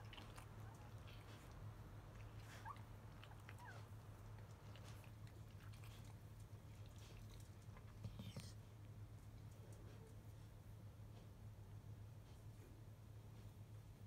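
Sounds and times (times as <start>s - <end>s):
puppies suckling: 0.0s - 8.2s
low steady hum: 0.0s - 14.0s.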